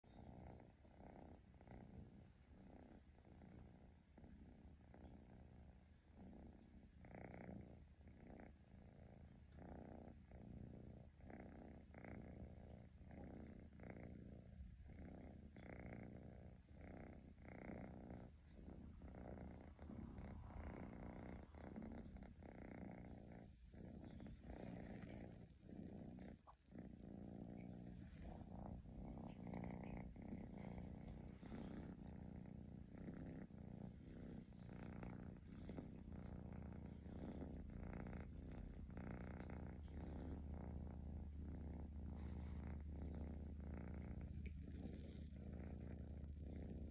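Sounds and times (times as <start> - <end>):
cat purring: 0.0 - 46.9.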